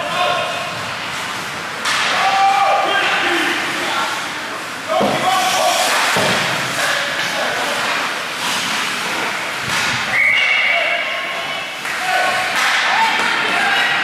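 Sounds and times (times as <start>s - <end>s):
crowd voices and shouts: 0.0s - 14.0s
sharp whistle blast: 10.1s - 11.0s.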